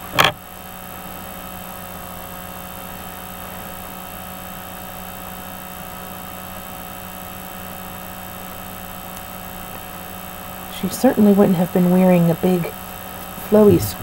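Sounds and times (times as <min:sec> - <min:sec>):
electrical hum and hiss: 0:00.0 - 0:14.0
whining tones: 0:13.2 - 0:14.0.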